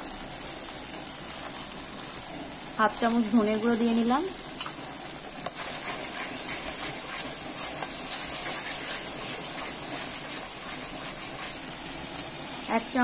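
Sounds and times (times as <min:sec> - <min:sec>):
paste sizzling in oil: 0:00.0 - 0:13.0
metal spatula scraping: 0:05.6 - 0:11.9.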